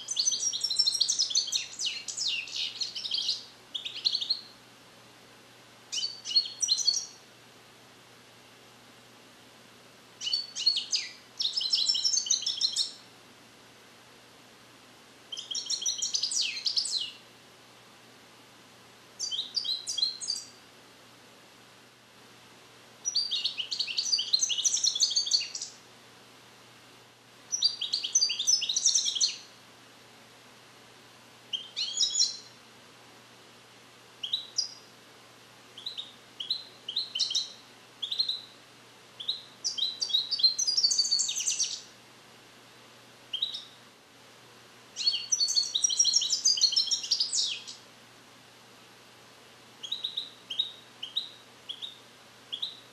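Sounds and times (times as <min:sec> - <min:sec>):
goldfinch twittering song: 0:00.0 - 0:04.5, 0:05.9 - 0:07.2, 0:10.2 - 0:13.0, 0:15.3 - 0:17.2, 0:19.2 - 0:20.5, 0:23.1 - 0:25.8, 0:27.5 - 0:29.5, 0:31.5 - 0:32.5, 0:34.2 - 0:34.8, 0:35.8 - 0:38.5, 0:39.2 - 0:41.9, 0:43.3 - 0:43.8, 0:45.0 - 0:47.8, 0:49.8 - 0:52.8.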